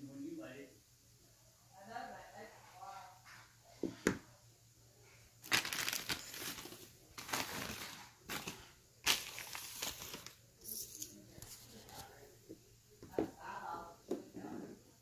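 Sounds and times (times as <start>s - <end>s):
plastic bag crinkling: 5.4s - 11.8s.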